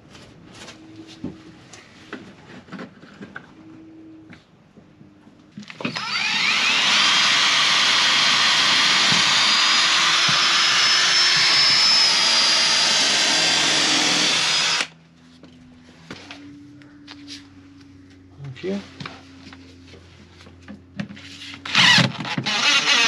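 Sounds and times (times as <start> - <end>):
small electric motor whine: 5.8 - 14.9, 21.5 - 23.0.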